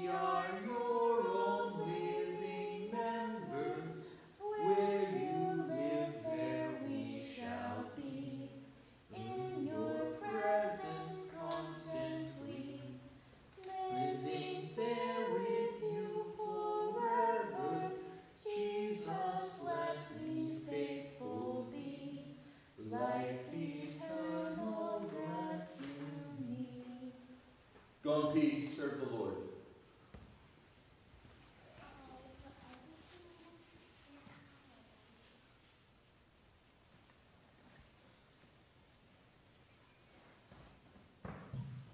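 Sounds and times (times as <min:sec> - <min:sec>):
unaccompanied hymn singing: 0:00.0 - 0:29.5.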